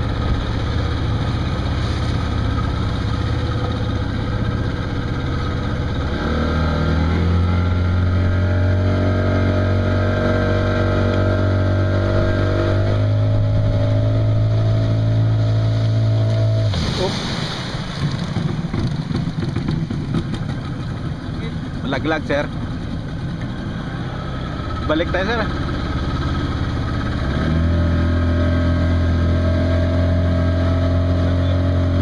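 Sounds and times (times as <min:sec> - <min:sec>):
outboard motor running: 0:00.0 - 0:32.0
sea and wind hiss: 0:11.5 - 0:18.0.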